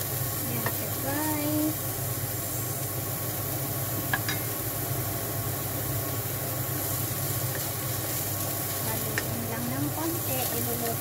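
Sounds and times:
food sizzling in oil: 0:00.0 - 0:11.0
kitchen exhaust fan hum: 0:00.0 - 0:11.0.

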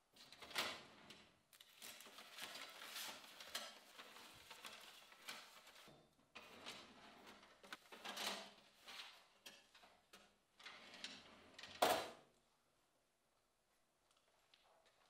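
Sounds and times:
rummaging through contents: 0:01.6 - 0:09.9.

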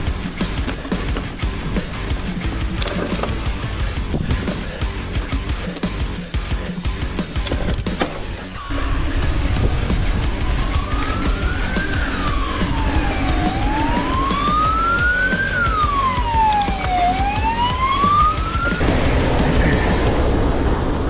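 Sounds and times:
siren wailing: 0:10.3 - 0:18.8
background rush: 0:18.4 - 0:21.0.

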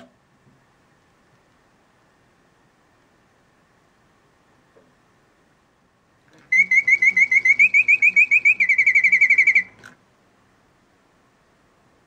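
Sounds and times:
mechanical bird whistle chirping: 0:06.5 - 0:09.8.

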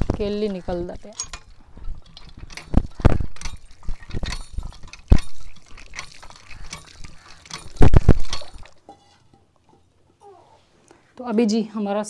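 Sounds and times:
water splashing from spout: 0:00.0 - 0:08.8
metal hand pump clanking: 0:00.0 - 0:09.9.

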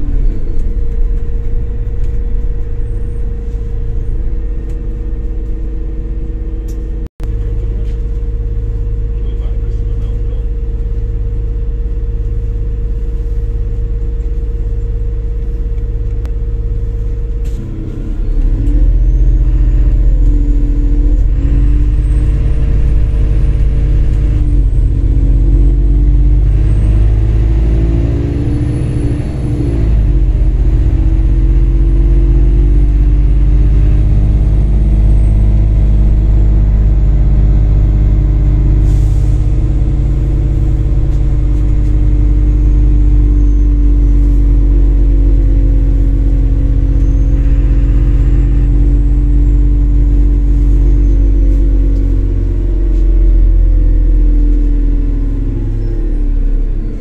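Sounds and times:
bus engine idling and accelerating: 0:00.0 - 0:57.0.

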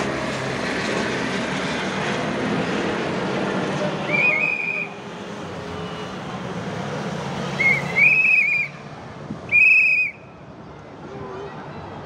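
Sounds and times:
cars passing hum: 0:00.0 - 0:12.0
whistle trilling blasts: 0:04.0 - 0:05.0, 0:07.6 - 0:08.8, 0:09.5 - 0:10.3.

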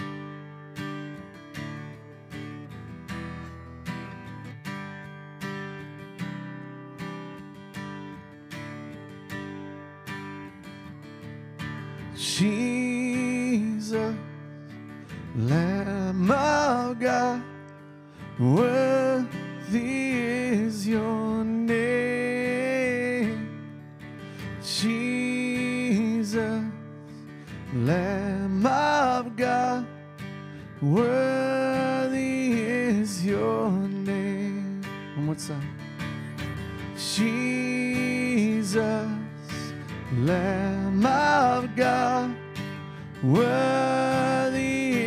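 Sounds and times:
strummed acoustic guitar: 0:00.0 - 0:45.0
person singing with vibrato: 0:43.2 - 0:45.0.

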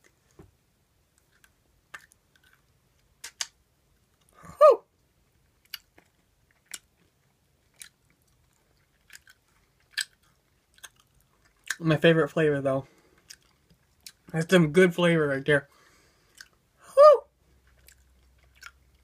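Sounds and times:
wet mouth clicks and smacks: 0:01.2 - 0:03.6, 0:07.7 - 0:11.8, 0:16.3 - 0:16.6
short falling vocal sound: 0:04.4 - 0:04.9, 0:16.9 - 0:17.3.

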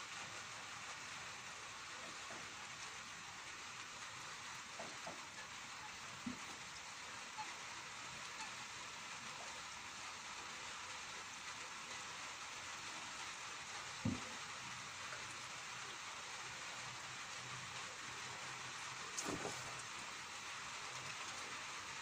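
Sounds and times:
light rain hiss: 0:00.0 - 0:22.0
dull thump: 0:14.0 - 0:14.4, 0:19.2 - 0:19.9.

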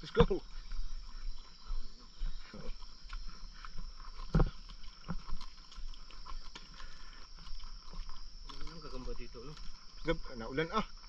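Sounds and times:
footsteps on trail: 0:00.0 - 0:11.0
insect trill: 0:00.0 - 0:11.0
person breathing hard: 0:06.7 - 0:07.4.

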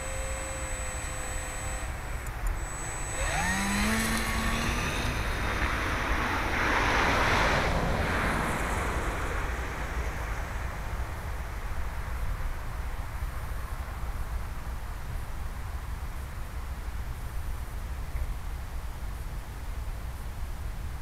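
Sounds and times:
model plane propeller buzz: 0:00.0 - 0:06.9.

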